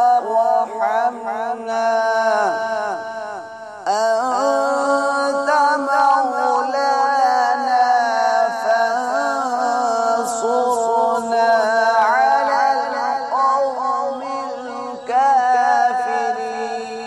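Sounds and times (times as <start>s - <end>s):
man chanting recitation: 0.0s - 17.0s.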